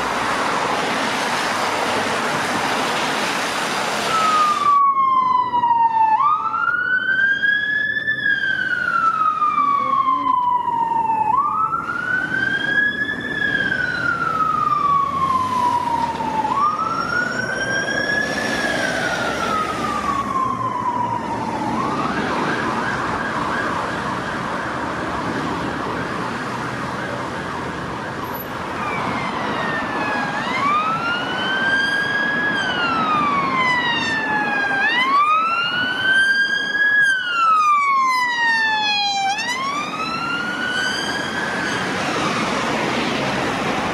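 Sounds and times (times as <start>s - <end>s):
traffic noise: 0.0s - 43.9s
police siren: 4.0s - 43.9s.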